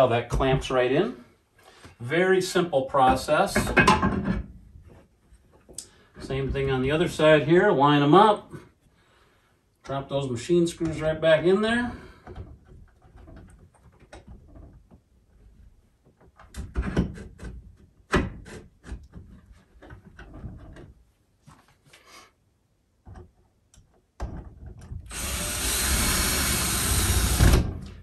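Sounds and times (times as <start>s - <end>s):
cordless drill running: 25.1s - 27.8s.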